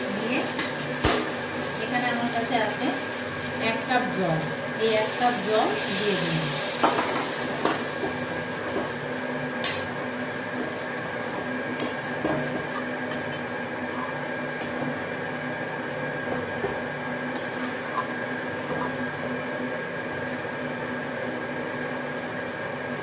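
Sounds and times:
spatula stirring food in wok: 0:06.6 - 0:19.2.

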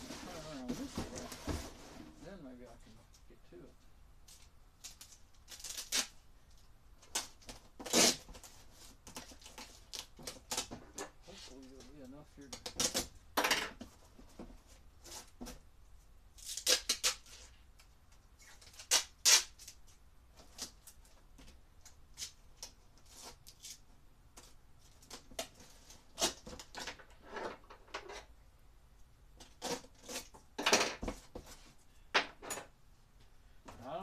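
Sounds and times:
cardboard rustling: 0:00.0 - 0:02.4
packing tape pulled off roll: 0:04.3 - 0:06.2, 0:07.0 - 0:10.8, 0:12.5 - 0:13.1, 0:16.4 - 0:21.0, 0:24.4 - 0:27.0.

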